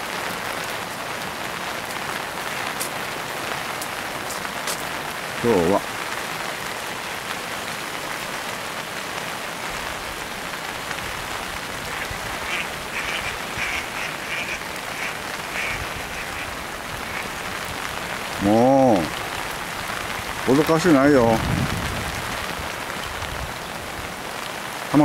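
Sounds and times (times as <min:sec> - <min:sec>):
rain falling on a pond: 0:00.0 - 0:25.0
person's voice: 0:05.4 - 0:05.9, 0:18.4 - 0:19.2, 0:20.4 - 0:21.5
duck calls: 0:11.8 - 0:17.7.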